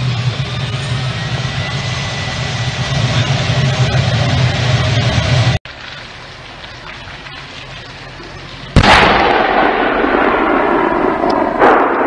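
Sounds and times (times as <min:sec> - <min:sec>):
tank gun blast with echo: 0:08.8 - 0:12.0.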